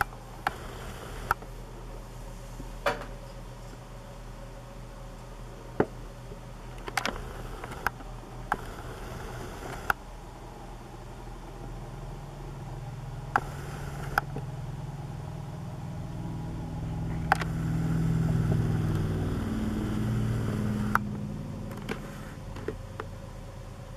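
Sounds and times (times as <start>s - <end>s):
ceiling fan clicks and taps: 0.0s - 1.6s, 5.7s - 10.1s, 13.0s - 14.7s, 16.9s - 23.3s.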